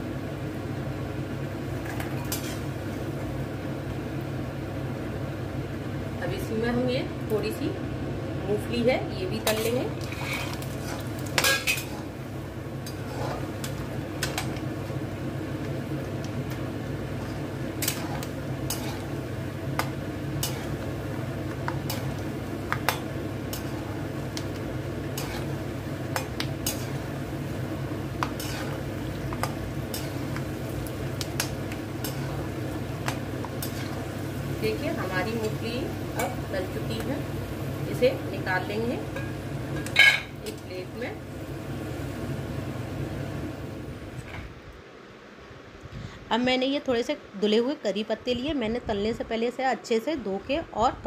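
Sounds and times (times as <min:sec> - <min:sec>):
peanuts sizzling in hot oil: 0:01.6 - 0:04.1, 0:08.3 - 0:44.2.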